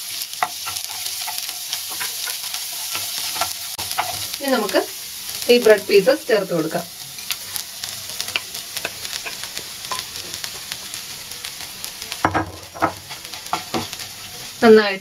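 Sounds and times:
bread sizzling in oil: 0:00.0 - 0:15.0
spatula scraping pan: 0:00.2 - 0:06.1, 0:06.7 - 0:10.8, 0:12.4 - 0:14.7
knocks in pan: 0:12.2 - 0:13.9.

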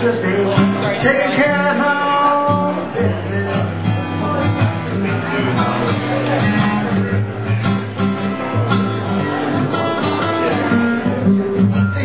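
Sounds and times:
man singing: 0:00.0 - 0:07.4, 0:11.0 - 0:12.0
acoustic guitar strumming: 0:00.0 - 0:12.0.

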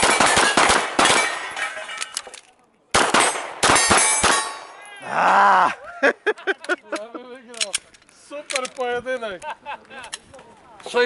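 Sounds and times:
rapid handgun shots: 0:00.0 - 0:01.5, 0:02.9 - 0:04.6
bullets clanging on steel targets: 0:00.0 - 0:02.4, 0:03.2 - 0:04.9.

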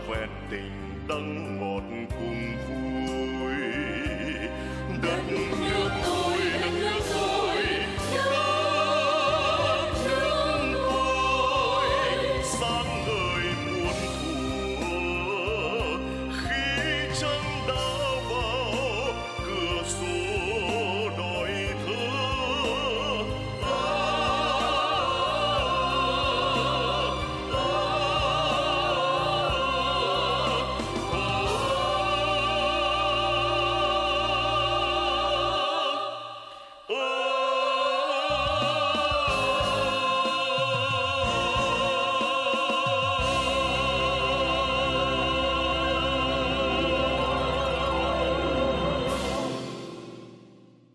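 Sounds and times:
man singing lead: 0:00.0 - 0:06.8, 0:12.3 - 0:23.9
female chorus singing: 0:05.0 - 0:13.2, 0:23.5 - 0:49.7.

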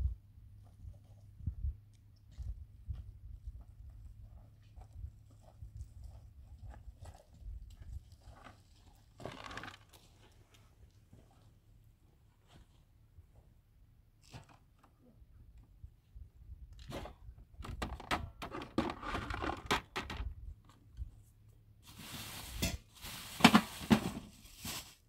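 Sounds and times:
rough rustling noise: 0:21.1 - 0:25.0.

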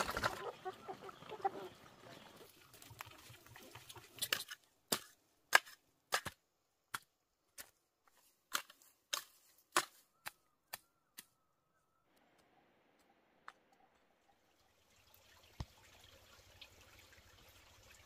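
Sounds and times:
hoe chopping into soil: 0:08.5 - 0:10.8.

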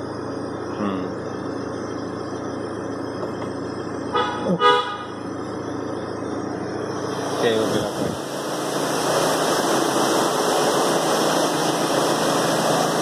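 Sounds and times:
car engine idling: 0:00.0 - 0:13.0
car horn toots: 0:04.1 - 0:05.1.

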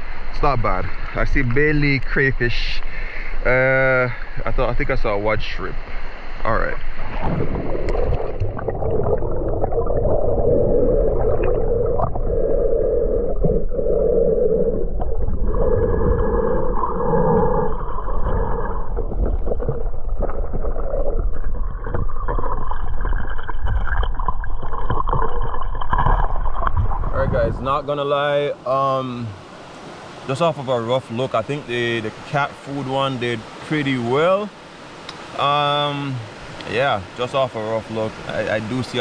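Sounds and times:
low hum: 0:00.0 - 0:28.6
water sloshing underwater: 0:05.8 - 0:27.9.

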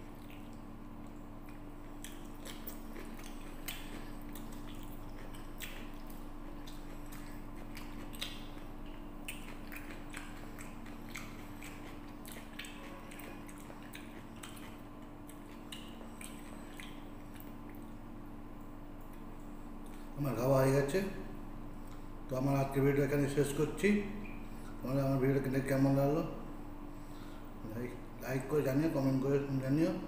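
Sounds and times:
person chewing and smacking: 0:00.0 - 0:20.2
steady low hum: 0:00.0 - 0:30.0
small clicks and smacks: 0:00.2 - 0:18.0.

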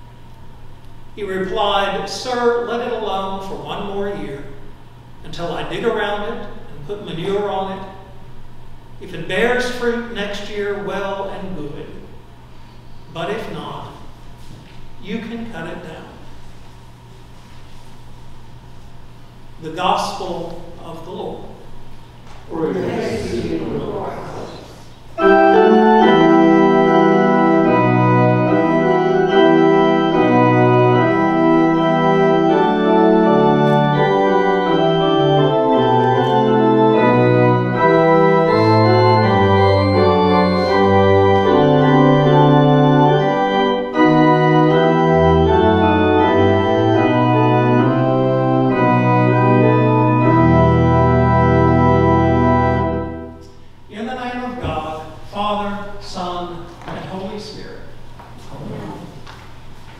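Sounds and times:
organ playing held chords: 0:22.5 - 0:56.0.

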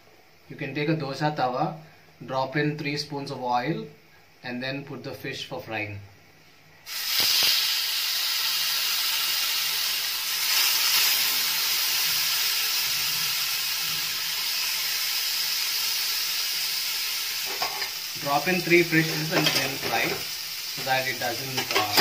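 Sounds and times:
fish sizzling in hot oil: 0:06.9 - 0:22.0.

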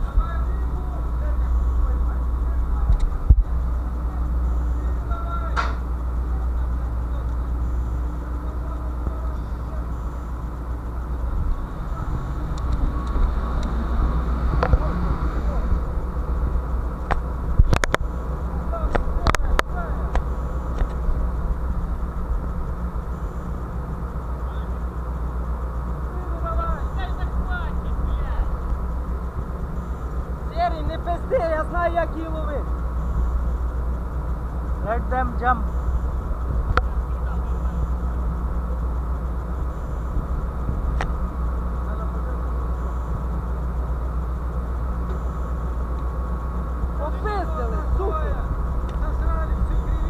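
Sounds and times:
faint steady whine: 0:00.0 - 0:50.0
ship machinery hum: 0:00.0 - 0:50.0
sharp click: 0:05.6 - 0:05.8.

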